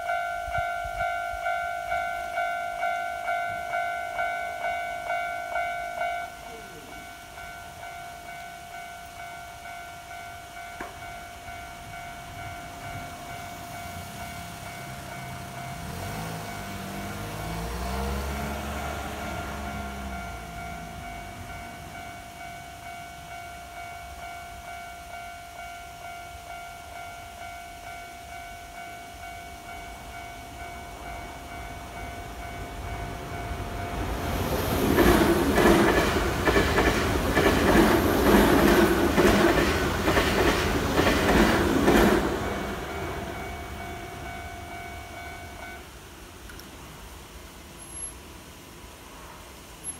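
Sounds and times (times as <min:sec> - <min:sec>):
level crossing bell ringing: 0:00.0 - 0:34.1, 0:42.4 - 0:46.0
electric train passing: 0:00.0 - 0:49.9
train wheels clacking: 0:30.9 - 0:45.8.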